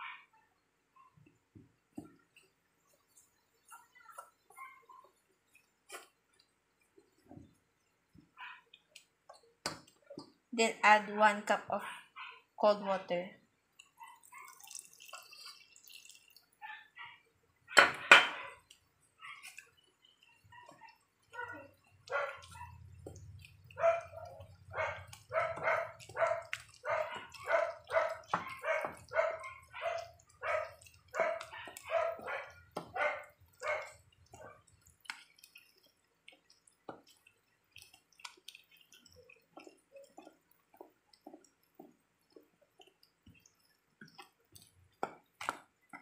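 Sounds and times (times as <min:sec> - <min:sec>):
spatula stirring batter in metal bowl: 0:01.2 - 0:10.5, 0:13.7 - 0:46.0
dog barking: 0:11.8 - 0:12.5, 0:14.0 - 0:14.6, 0:20.5 - 0:22.8, 0:23.8 - 0:34.7.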